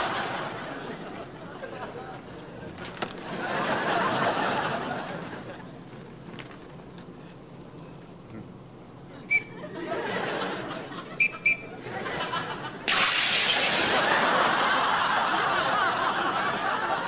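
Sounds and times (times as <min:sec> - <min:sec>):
people laughing: 0:00.0 - 0:05.8, 0:09.1 - 0:12.9, 0:13.6 - 0:17.0
life jacket inflating hiss: 0:12.9 - 0:14.1.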